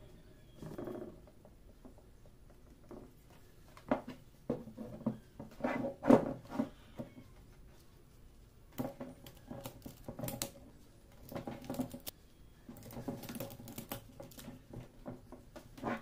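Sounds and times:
wooden staves knocking and clacking: 8.7 - 12.1, 12.7 - 16.0.

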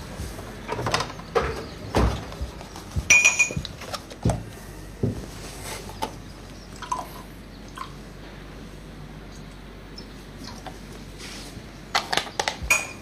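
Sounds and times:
dishes and glassware clinking: 3.1 - 3.7, 12.7 - 13.0.

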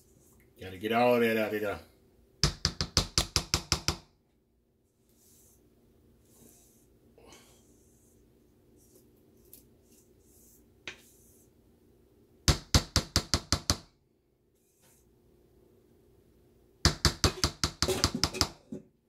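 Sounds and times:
quick knocks on metal bakeware: 16.9 - 18.8.

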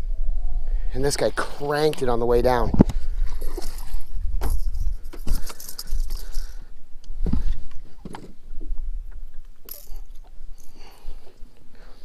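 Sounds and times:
fishing lure jangling and rattling: 3.4 - 6.6, 9.7 - 11.0.

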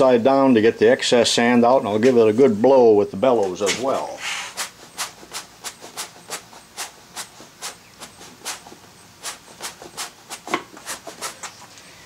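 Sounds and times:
hand bellows puffing air: 3.7 - 11.6.

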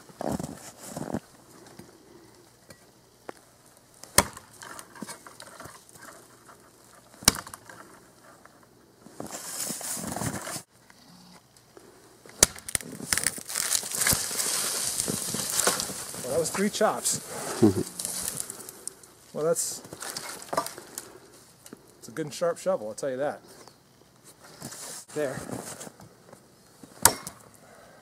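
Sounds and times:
rustling: 3.2 - 10.7, 11.7 - 22.0, 23.5 - 27.0
shovel chopping into wood: 4.1 - 5.1, 7.2 - 7.7, 12.3 - 13.2, 27.0 - 27.4.

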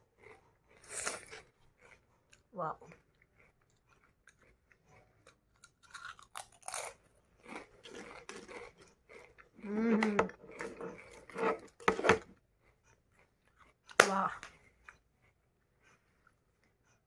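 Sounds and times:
crisps being crunched and chewed: 0.2 - 9.7
person humming: 9.6 - 10.4.

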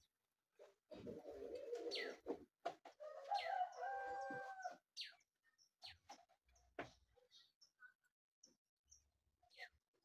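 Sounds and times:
rooster crowing: 3.0 - 4.8.

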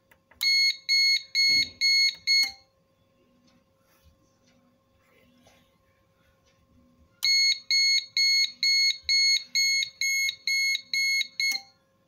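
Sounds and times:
high-pitched buzzer beeps: 0.4 - 2.6, 7.2 - 11.8.

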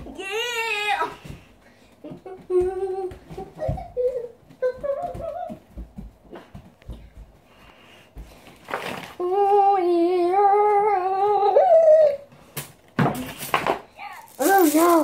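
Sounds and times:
girl humming: 2.1 - 5.6, 9.2 - 12.3
rustling: 13.2 - 15.0.

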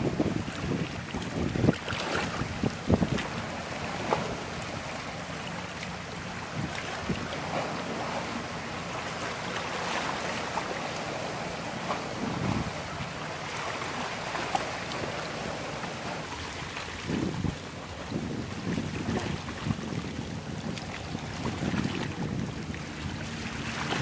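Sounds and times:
wind noise on microphone: 0.0 - 4.7, 6.5 - 8.2, 11.9 - 13.1, 16.0 - 24.0
passing boats: 0.0 - 24.0
river water: 0.0 - 24.0.

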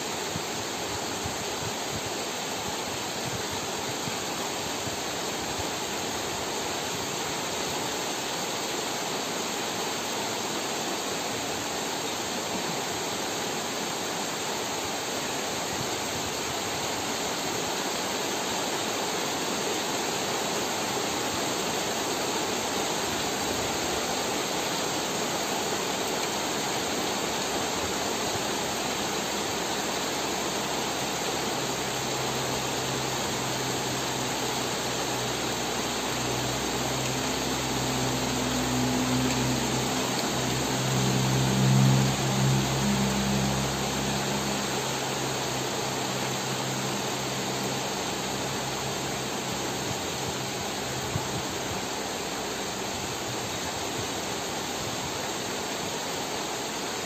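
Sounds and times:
heavy rain on leaves: 0.0 - 57.0
low steady hum: 27.4 - 53.0.

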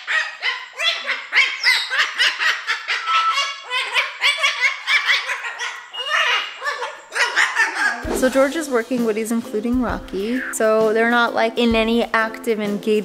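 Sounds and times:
parrot calling: 0.0 - 8.4.

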